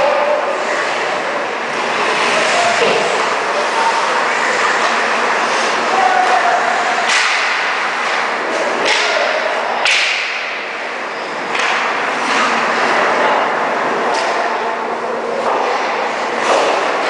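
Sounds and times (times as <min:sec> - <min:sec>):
skates scraping ice: 0:00.0 - 0:09.2, 0:11.4 - 0:13.3, 0:15.3 - 0:17.0
sharp cracks of sticks and puck: 0:05.6 - 0:10.8, 0:11.4 - 0:13.4, 0:14.0 - 0:14.7, 0:15.4 - 0:17.0.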